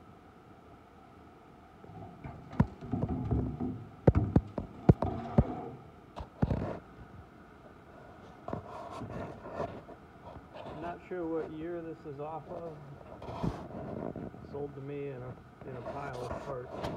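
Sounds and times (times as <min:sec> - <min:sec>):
sharp knocks and clicks: 0:02.2 - 0:05.6
rubbing noise: 0:08.0 - 0:11.6, 0:12.5 - 0:14.4, 0:15.7 - 0:16.9.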